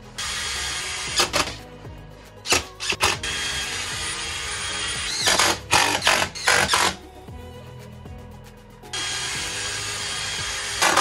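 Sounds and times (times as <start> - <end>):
drill driving screws: 0.2 - 1.7, 2.4 - 7.0, 9.0 - 11.0.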